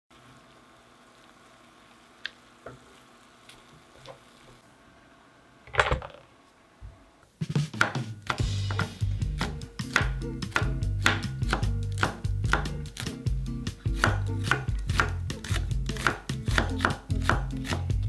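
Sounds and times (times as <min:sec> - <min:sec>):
duck sizzling in skillet: 0:00.1 - 0:04.7
music: 0:07.4 - 0:18.0.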